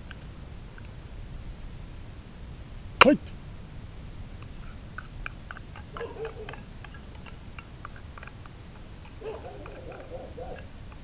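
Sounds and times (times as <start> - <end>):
cats crunching dry kibble: 5.0 - 11.0.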